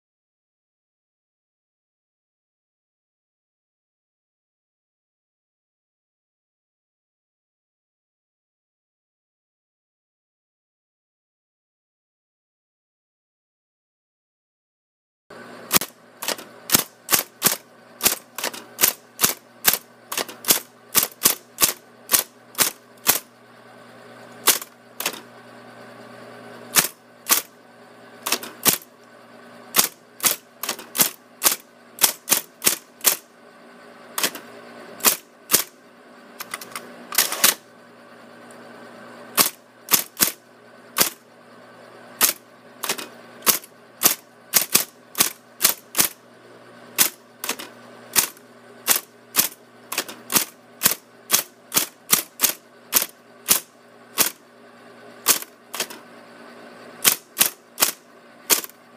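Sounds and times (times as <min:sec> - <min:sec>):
typewriter carriage return clatter: 0:15.7 - 0:23.3, 0:24.4 - 0:25.3, 0:26.7 - 0:27.5, 0:28.2 - 0:28.9, 0:29.7 - 0:33.2, 0:34.2 - 0:35.8, 0:36.4 - 0:37.6, 0:39.4 - 0:40.4, 0:42.2 - 0:46.2, 0:47.0 - 0:54.4, 0:55.2 - 0:56.0, 0:57.0 - 0:58.8
typewriter type-bar strikes: 0:15.7 - 0:23.3, 0:24.4 - 0:25.2, 0:26.7 - 0:27.5, 0:28.2 - 0:28.9, 0:29.7 - 0:33.3, 0:34.2 - 0:35.8, 0:36.4 - 0:37.6, 0:39.4 - 0:40.4, 0:41.0 - 0:41.2, 0:42.2 - 0:46.2, 0:47.0 - 0:54.4, 0:55.2 - 0:56.0, 0:57.0 - 0:58.8.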